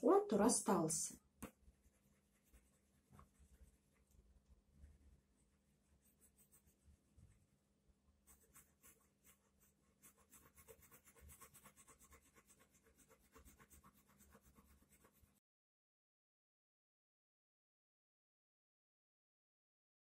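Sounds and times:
pencil scratching on paper: 1.4 - 4.2, 5.8 - 6.9, 8.2 - 15.4.

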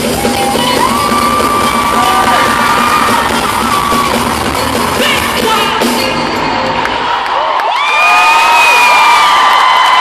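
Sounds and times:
amplified pop music: 0.0 - 7.8
crowd cheering and shrieking: 0.0 - 10.0.

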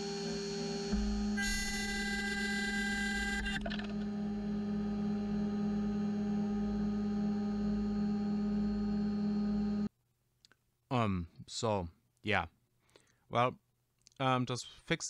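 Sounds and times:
machine humming: 0.0 - 9.9.

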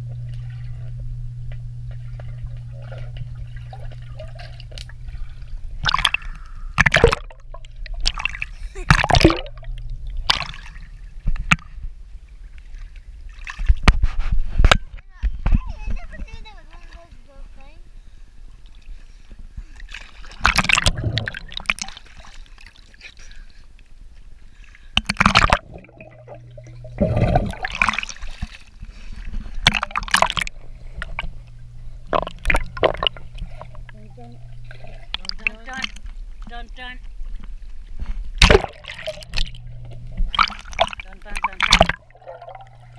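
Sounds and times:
pool water splashing: 0.0 - 11.7, 19.7 - 42.9
low rumble: 0.0 - 12.6
low steady hum: 0.0 - 42.9.

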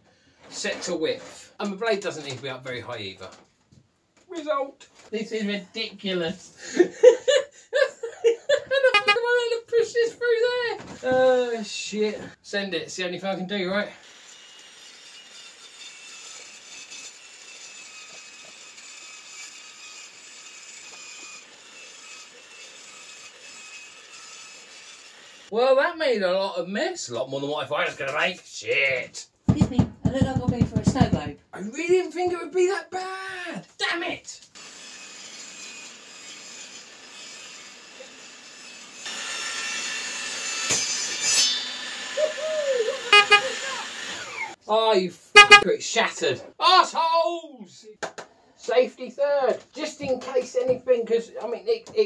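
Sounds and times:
table saw cutting acrylic: 8.9 - 9.2, 14.0 - 25.5, 34.6 - 44.6.

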